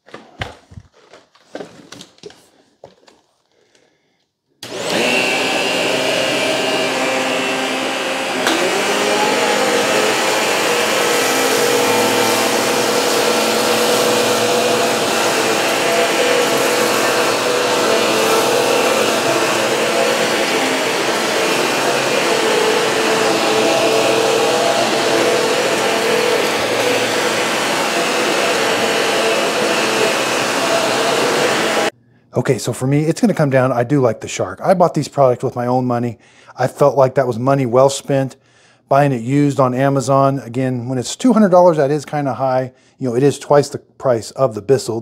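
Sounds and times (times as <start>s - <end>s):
upright vacuum cleaners running: 4.6s - 31.9s.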